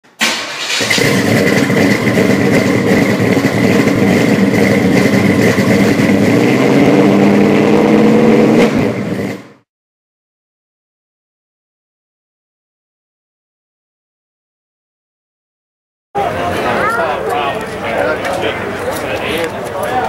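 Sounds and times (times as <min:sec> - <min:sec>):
car engine running: 0:00.4 - 0:09.6.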